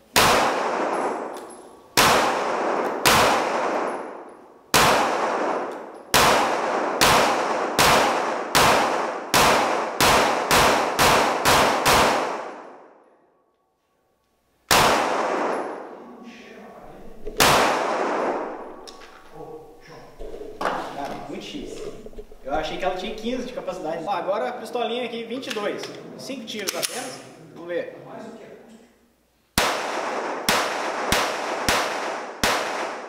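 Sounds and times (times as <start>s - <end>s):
pistol shots echoing: 0.0s - 13.0s, 14.7s - 15.9s, 17.2s - 19.3s, 29.6s - 33.0s.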